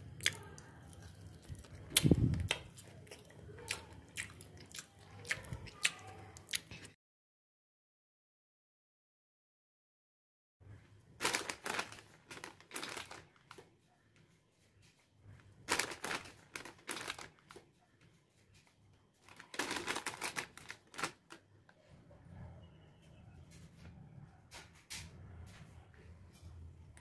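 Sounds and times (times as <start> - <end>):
chip packet crinkling: 11.2 - 13.7, 15.6 - 17.7, 19.2 - 21.4.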